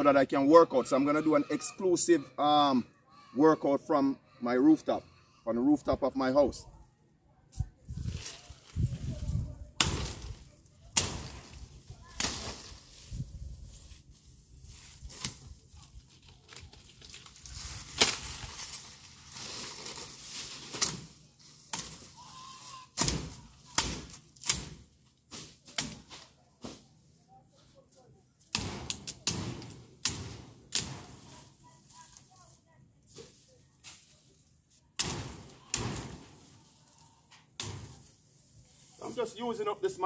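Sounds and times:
leaves rustling: 0:07.6 - 0:40.0
machete chopping branches: 0:09.8 - 0:12.8, 0:17.8 - 0:18.8, 0:19.8 - 0:22.1, 0:23.0 - 0:26.8, 0:28.5 - 0:31.4, 0:35.0 - 0:36.5, 0:37.6 - 0:38.1.

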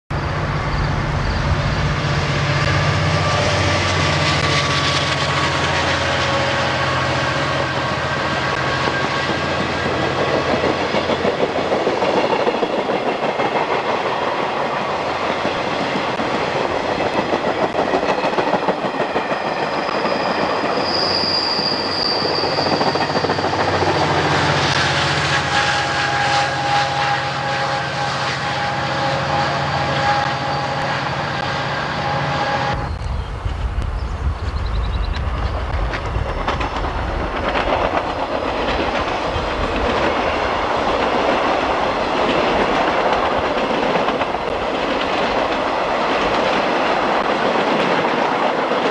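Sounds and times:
high-pitched wheel squeal: 0:00.1 - 0:10.0, 0:19.2 - 0:33.1
diesel locomotive engine drone: 0:00.1 - 0:48.9
train wheels clacking on rails: 0:01.4 - 0:33.7, 0:34.4 - 0:48.9.

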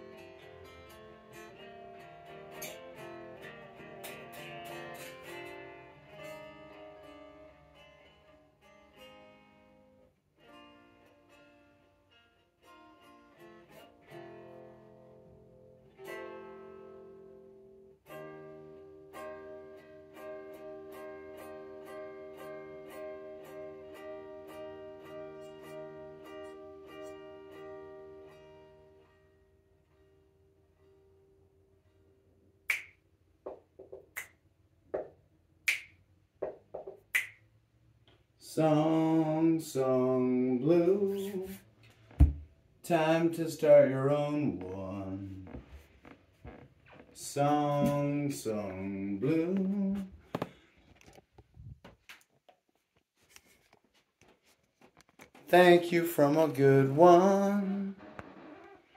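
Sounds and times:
acoustic guitar strumming: 0:00.0 - 0:31.8, 0:38.5 - 0:51.1, 0:55.1 - 0:58.9
finger snaps: 0:32.7 - 0:33.0, 0:34.1 - 0:34.4, 0:35.7 - 0:36.0, 0:37.1 - 0:37.4
person singing: 0:38.4 - 0:41.6, 0:42.8 - 0:45.6, 0:47.2 - 0:50.2, 0:55.4 - 0:58.2.

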